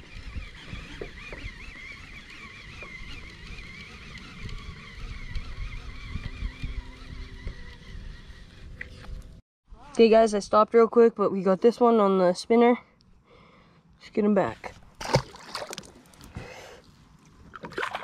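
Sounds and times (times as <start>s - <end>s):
fishing reel whining: 0.0s - 8.8s
wind on microphone: 0.0s - 9.4s.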